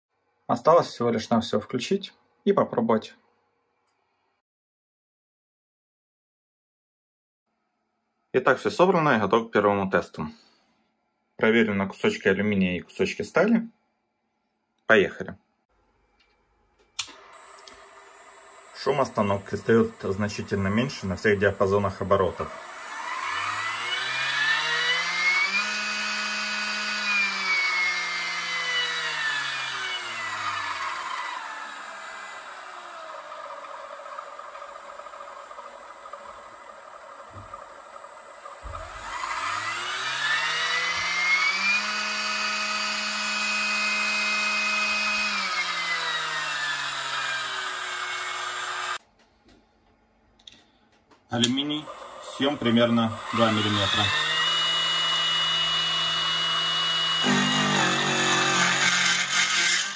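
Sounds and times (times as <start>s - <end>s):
mill motor whine: 17.0s - 49.0s, 51.4s - 59.9s.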